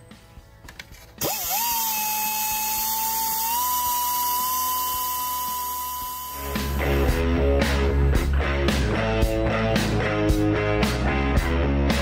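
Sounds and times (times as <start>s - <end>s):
rotary grinder whining: 1.2s - 7.1s.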